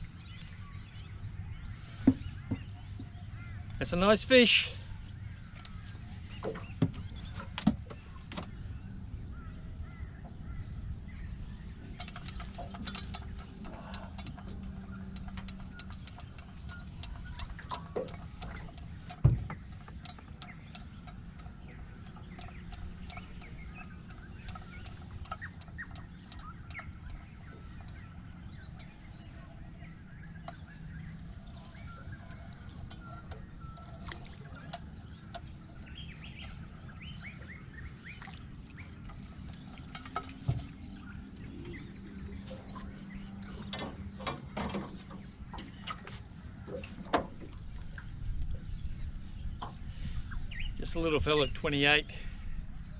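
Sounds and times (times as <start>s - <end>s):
birds calling: 0.0s - 52.9s
low wind rumble: 0.0s - 52.9s
knocks on aluminium boat: 2.0s - 3.2s, 17.8s - 20.4s.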